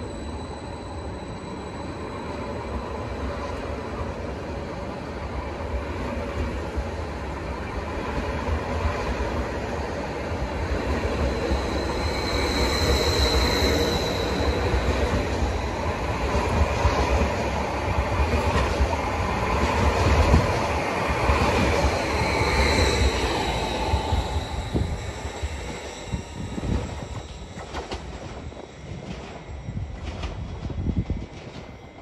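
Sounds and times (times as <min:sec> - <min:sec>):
train running: 0:00.0 - 0:32.0
high-pitched wheel squeal: 0:11.1 - 0:15.9, 0:21.2 - 0:28.9.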